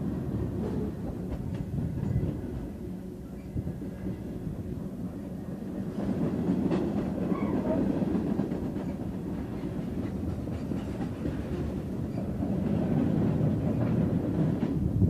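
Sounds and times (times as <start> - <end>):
clickety-clack over rail joints: 0.0 - 4.7, 5.6 - 15.0
steel wheels rumbling on rails: 5.5 - 15.0.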